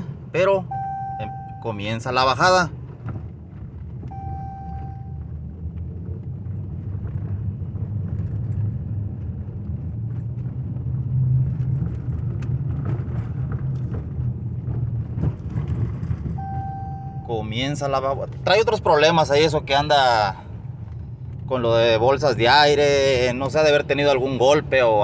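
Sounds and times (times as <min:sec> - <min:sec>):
engine and road rumble: 0:00.0 - 0:25.0
dashboard chime: 0:00.7 - 0:01.8, 0:04.1 - 0:05.1, 0:16.4 - 0:17.4.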